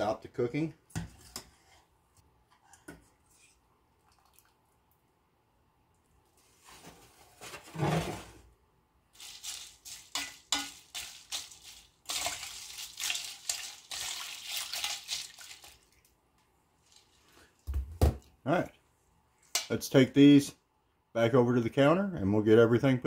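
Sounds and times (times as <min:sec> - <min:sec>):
ice and wire clinking on bowl: 0:09.2 - 0:15.8.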